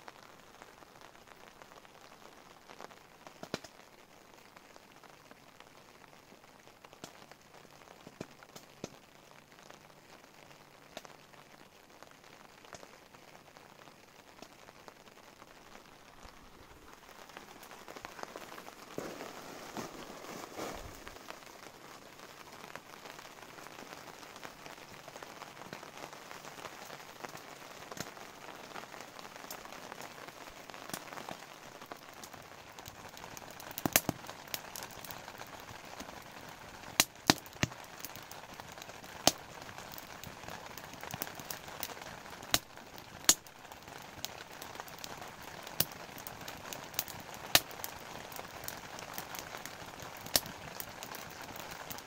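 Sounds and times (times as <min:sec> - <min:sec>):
rain pattering: 0:00.0 - 0:52.0
sharp pops and cracks: 0:03.3 - 0:03.8, 0:06.9 - 0:07.2, 0:08.0 - 0:09.0, 0:12.7 - 0:12.9, 0:16.9 - 0:22.0, 0:27.3 - 0:28.2, 0:30.8 - 0:31.4, 0:32.0 - 0:36.2, 0:36.9 - 0:52.0.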